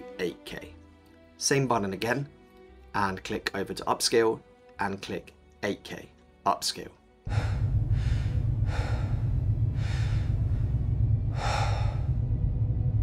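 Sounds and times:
man breathing slowly: 7.2 - 12.8
steady low hum: 7.3 - 13.0.

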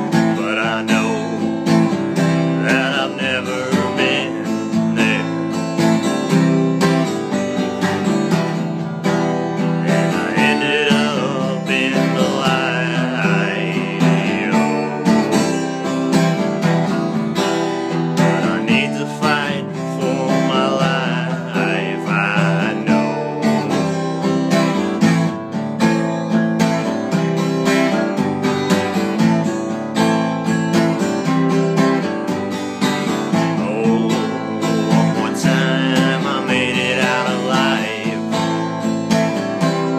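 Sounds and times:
strummed acoustic guitar: 0.0 - 39.9.

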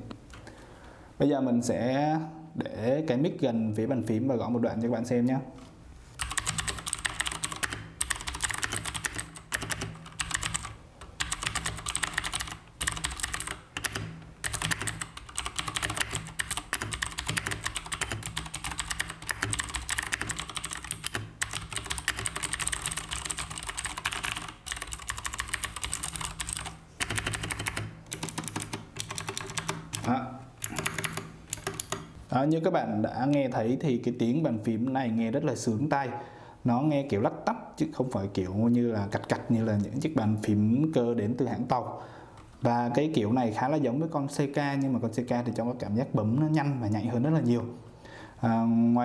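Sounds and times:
clicky mechanical keyboard typing: 6.2 - 32.1.

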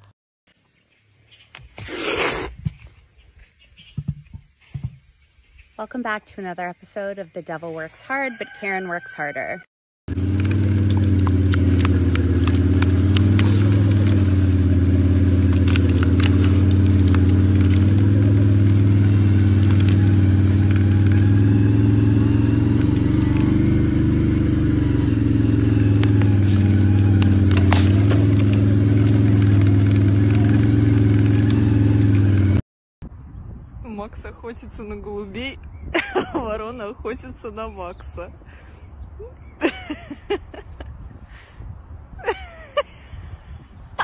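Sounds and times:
quad bike engine running: 10.1 - 32.6.

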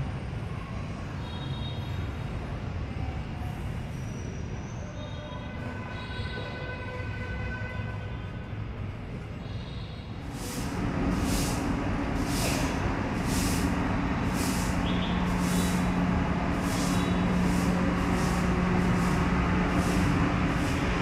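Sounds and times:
vehicle engine running: 10.2 - 21.0
regular hiss: 10.3 - 21.0.

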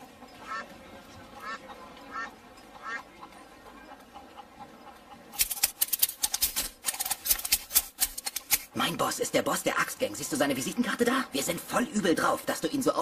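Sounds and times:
fast clatter of sharp clicks: 5.4 - 8.7.

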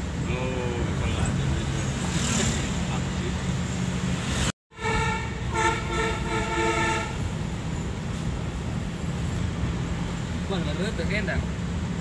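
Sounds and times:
road and engine noise: 0.0 - 12.0
multi-tone bus horn tune: 4.7 - 7.3.

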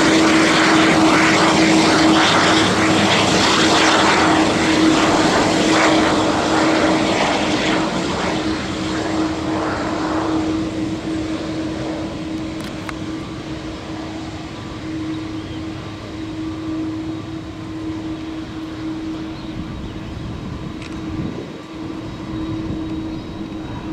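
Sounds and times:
jet engines of taxiing airliner: 0.0 - 23.9.

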